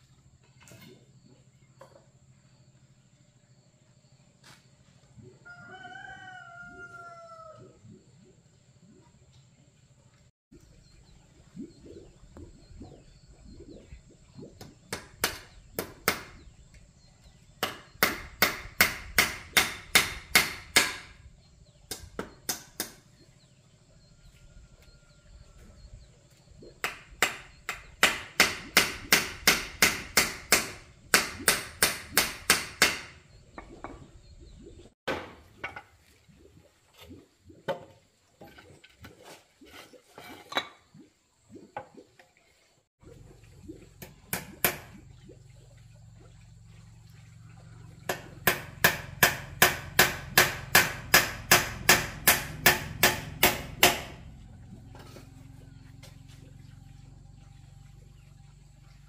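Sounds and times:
hammer striking wooden frame: 17.6s - 21.2s, 21.9s - 23.0s, 26.8s - 33.2s, 48.1s - 54.2s.

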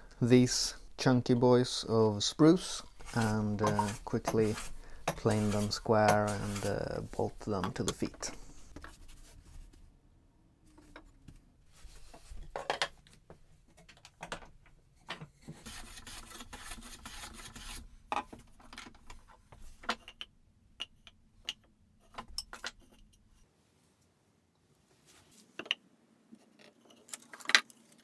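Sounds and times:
rustling scrape: 2.6s - 7.5s.

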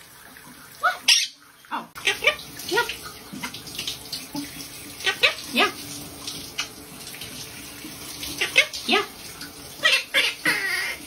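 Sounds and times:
shower water running: 0.0s - 11.0s
parakeet screaming and squawking: 0.8s - 3.6s, 4.9s - 5.8s, 8.3s - 11.0s.

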